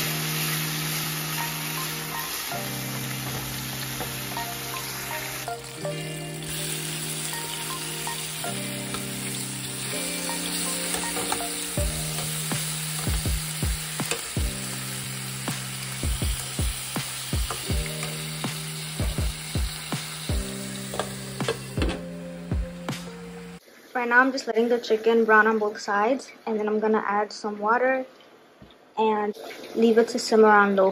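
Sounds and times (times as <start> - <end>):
chicken sizzling in oil: 0.0 - 22.0
background music: 0.0 - 23.6.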